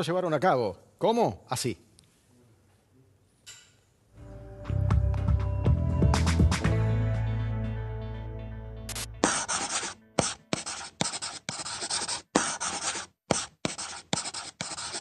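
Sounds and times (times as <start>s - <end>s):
chalk scratching on blackboard: 8.9s - 15.0s
chalk tapping on blackboard: 8.9s - 15.0s.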